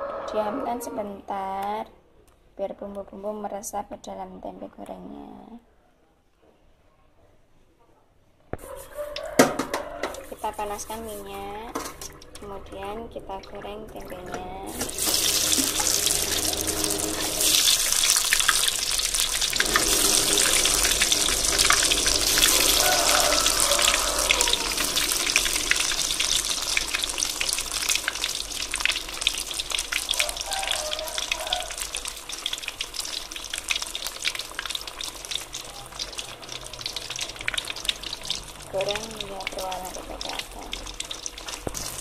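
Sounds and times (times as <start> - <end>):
food sizzling in hot oil: 14.7 - 42.0.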